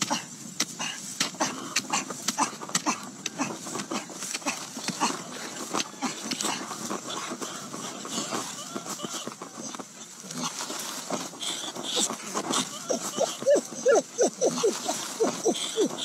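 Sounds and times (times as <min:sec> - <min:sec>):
hoe chopping dry earth: 0:00.0 - 0:13.5
short animal calls: 0:06.2 - 0:10.6, 0:11.4 - 0:16.0.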